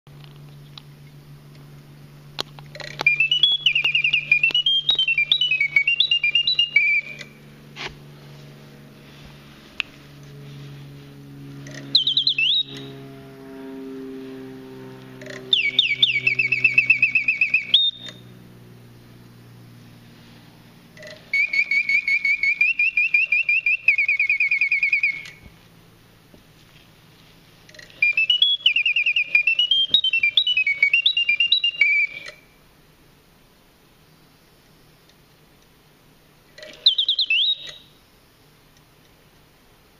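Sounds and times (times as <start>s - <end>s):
clockwork hum: 0.2s - 26.2s
mechanical bird whistle chirping: 2.8s - 7.4s, 11.7s - 13.0s, 15.2s - 18.3s, 21.0s - 25.5s, 27.7s - 32.6s, 36.5s - 38.0s.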